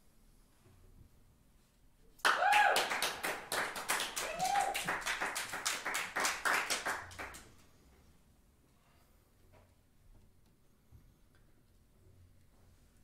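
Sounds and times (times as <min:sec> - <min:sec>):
short cheer: 0:02.2 - 0:05.4
audience applauding: 0:02.2 - 0:07.4.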